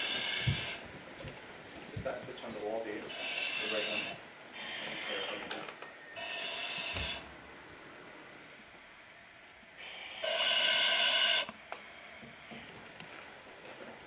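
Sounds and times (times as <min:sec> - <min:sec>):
hissing breaths through regulator: 0:00.0 - 0:00.8, 0:03.1 - 0:05.5, 0:06.2 - 0:07.3, 0:09.8 - 0:12.7.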